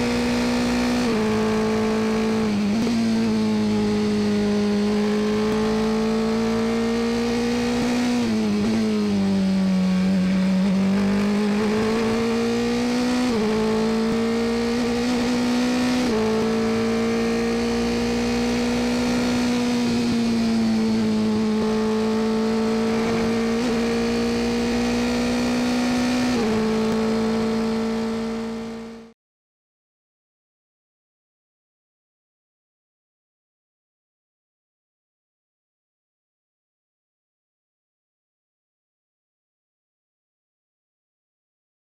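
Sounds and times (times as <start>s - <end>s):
race car engine at high revs: 0.0s - 29.1s.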